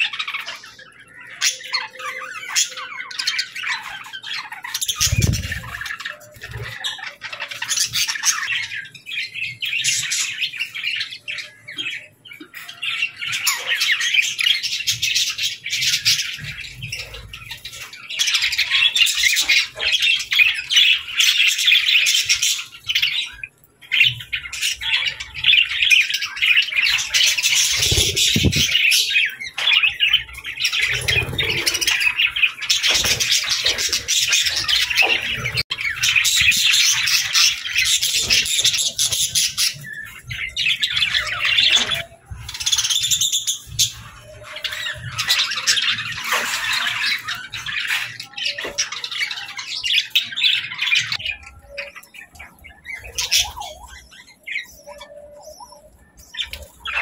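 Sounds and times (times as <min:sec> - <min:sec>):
budgerigars chattering: 0:24.0 - 0:57.0.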